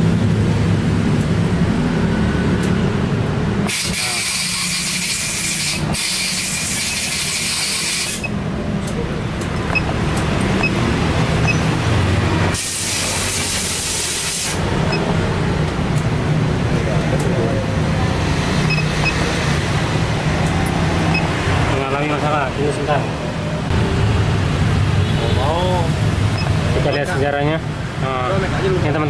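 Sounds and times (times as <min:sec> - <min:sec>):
loud bursts of hissing: 0:03.6 - 0:08.3, 0:12.4 - 0:14.8.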